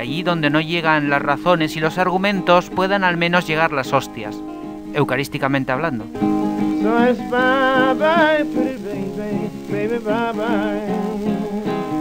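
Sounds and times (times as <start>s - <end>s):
strummed acoustic guitar: 0.0s - 12.0s
person singing with vibrato: 6.2s - 12.0s.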